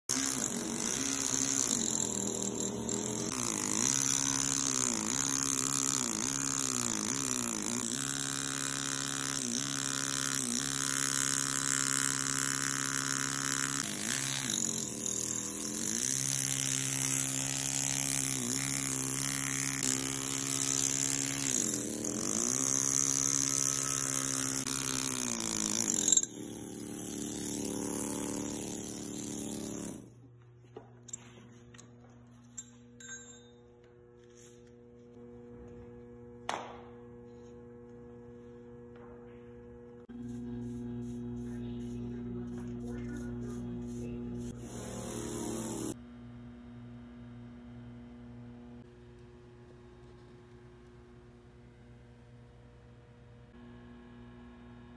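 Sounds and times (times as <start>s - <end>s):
pneumatic air chisel hammering stone: 0.1s - 30.1s, 42.6s - 46.0s.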